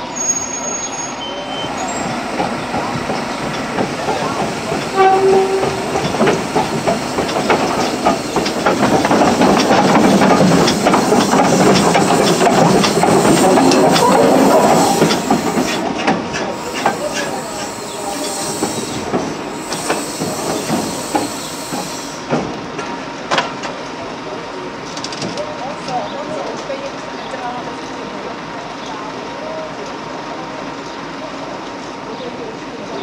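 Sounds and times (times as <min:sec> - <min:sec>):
steam locomotive hissing: 0:00.0 - 0:23.2
locomotive wheels and rods clanking: 0:01.8 - 0:23.8.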